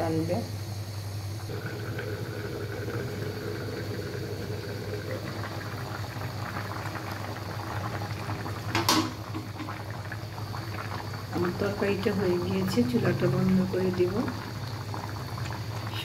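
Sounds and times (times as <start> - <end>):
curry bubbling in a pan: 0.6 - 16.0.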